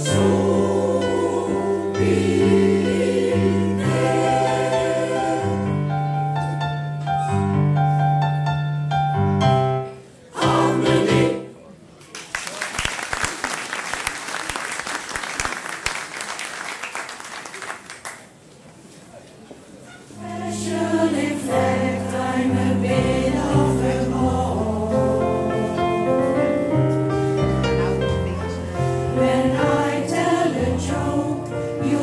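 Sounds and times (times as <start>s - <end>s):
choir singing: 0.0s - 6.3s, 10.3s - 11.6s, 20.2s - 26.7s, 28.6s - 32.0s
audience applauding: 12.0s - 18.4s.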